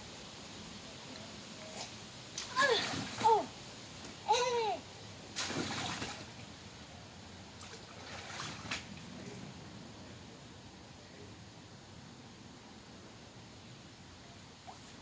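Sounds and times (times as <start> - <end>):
water splashing in paddling pool: 2.4 - 3.6, 5.4 - 6.4, 7.6 - 9.2
boy yelling: 2.5 - 3.5, 4.2 - 4.8.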